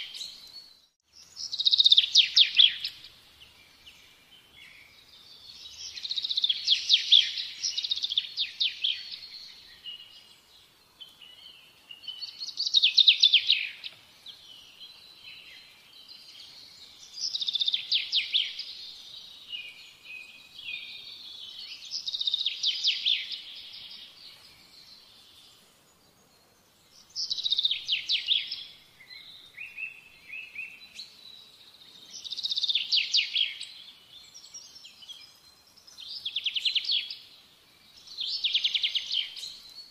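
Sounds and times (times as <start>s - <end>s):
soft bird chirps: 0.0s - 39.9s.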